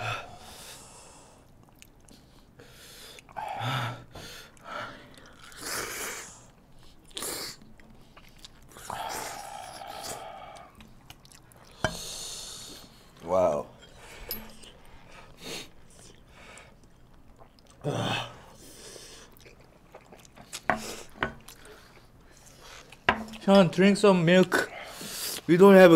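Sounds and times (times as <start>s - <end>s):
chewing: 1.4s - 3.4s, 4.5s - 11.8s, 13.8s - 17.8s, 18.6s - 23.4s.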